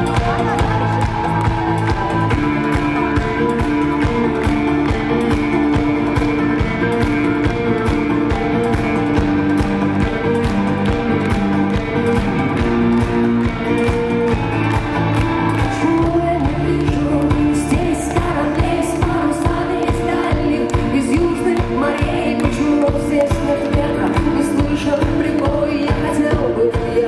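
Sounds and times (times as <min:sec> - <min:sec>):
live rock band playing: 0:00.0 - 0:27.0
person singing: 0:15.5 - 0:27.0.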